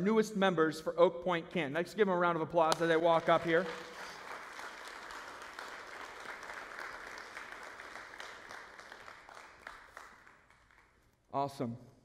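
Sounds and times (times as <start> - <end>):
congregation applauding: 2.7 - 11.2.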